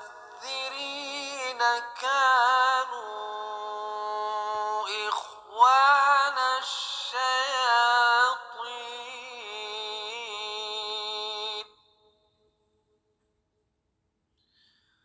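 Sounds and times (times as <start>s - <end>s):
solo voice chanting: 0.0s - 11.8s.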